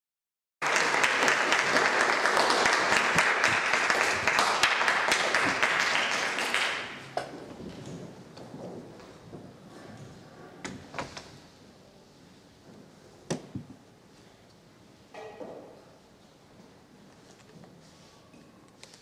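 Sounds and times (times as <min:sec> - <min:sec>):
audience applauding: 0:00.6 - 0:07.2.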